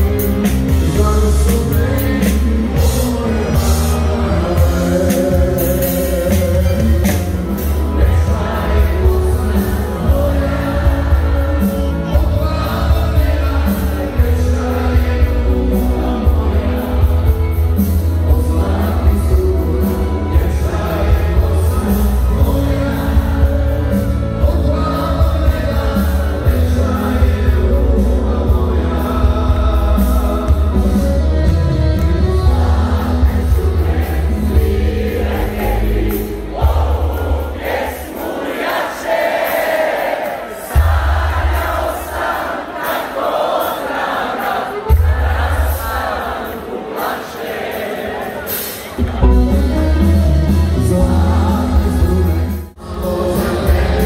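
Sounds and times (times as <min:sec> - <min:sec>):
man singing: 0:00.0 - 0:37.9, 0:46.6 - 0:54.0
live band playing pop-folk music: 0:00.0 - 0:54.0.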